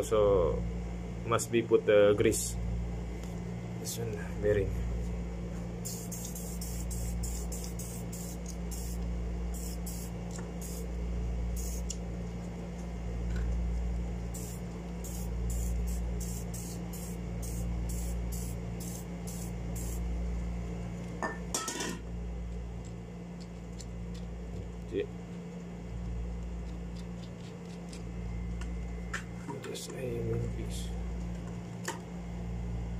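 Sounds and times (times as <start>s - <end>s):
aerosol spray can hissing: 5.8s - 10.9s, 11.6s - 11.9s, 14.4s - 20.0s.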